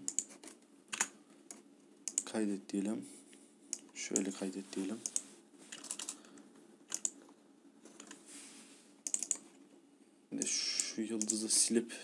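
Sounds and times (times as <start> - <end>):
keyboard typing: 0.0 - 2.3, 5.0 - 6.2, 6.9 - 7.2, 9.0 - 9.4.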